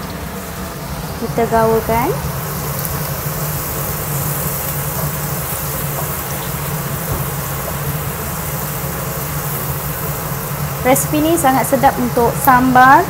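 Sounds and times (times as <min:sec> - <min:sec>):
food sizzling in oil: 0:00.0 - 0:13.0.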